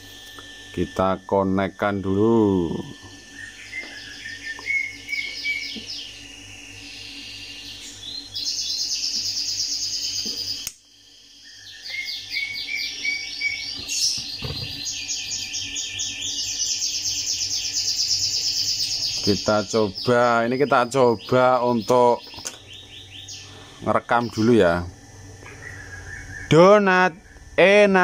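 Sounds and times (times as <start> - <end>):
rapid high-pitched chirping: 0.7 - 28.0
sharp click: 10.2 - 10.8.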